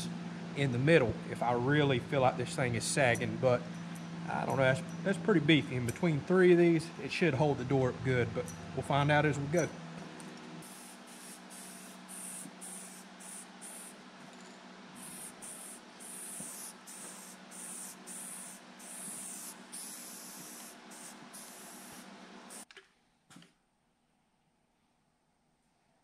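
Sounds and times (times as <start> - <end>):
steady low hum: 0.0 - 22.6
spray can hissing: 10.6 - 14.0, 15.0 - 22.7.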